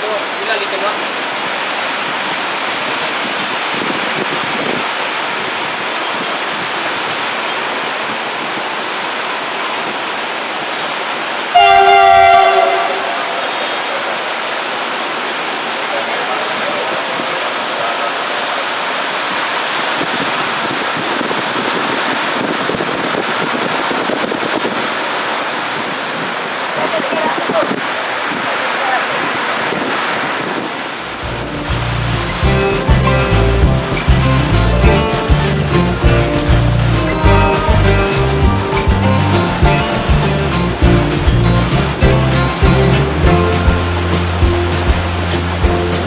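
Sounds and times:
heavy rain on roofs: 0.0 - 46.0
locomotive horn blast: 11.5 - 14.2.

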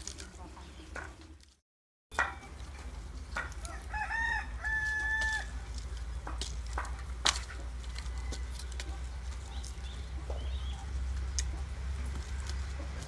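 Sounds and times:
firewood knocking and clattering: 0.0 - 1.4, 2.1 - 3.9, 5.2 - 13.0
rooster crowing: 3.6 - 5.6, 7.8 - 8.9.

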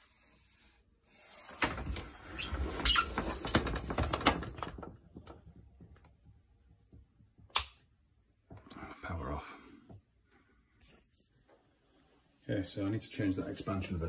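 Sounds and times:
sharp click: 7.5 - 7.8.

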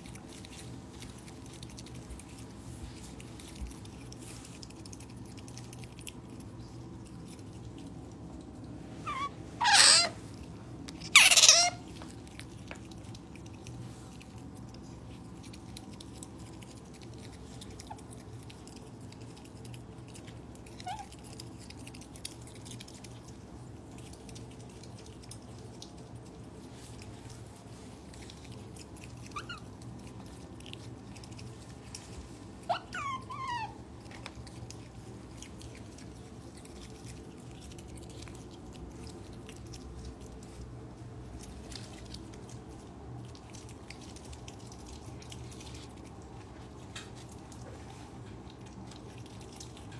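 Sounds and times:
otter squeaking: 9.0 - 10.2, 11.0 - 11.9.

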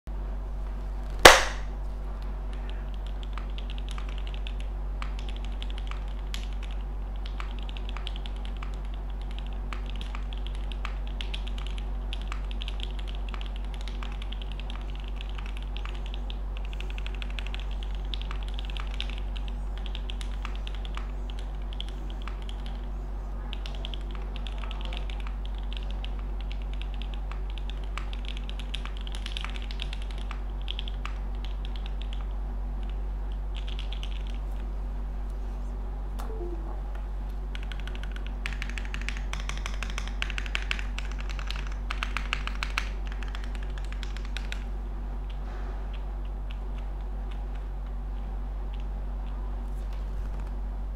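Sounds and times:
low hum: 32.0 - 38.4.

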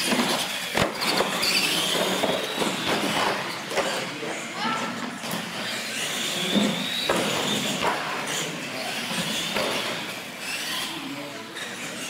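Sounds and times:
toy truck electric motors whining: 0.0 - 4.5, 5.2 - 12.0.

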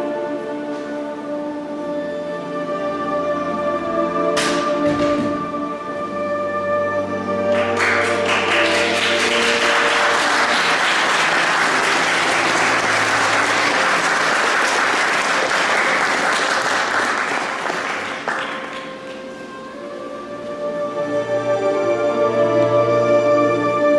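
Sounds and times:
soft background music: 0.0 - 14.9, 18.4 - 23.9
audience applauding: 7.4 - 19.3.

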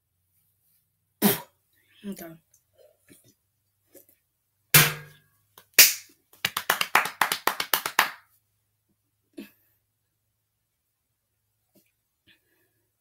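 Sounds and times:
hands clapping: 5.6 - 8.3.

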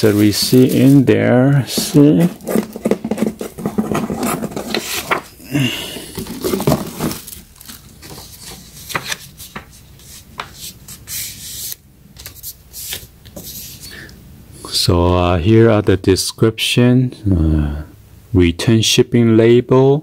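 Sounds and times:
tissue paper rustling: 0.0 - 11.6.

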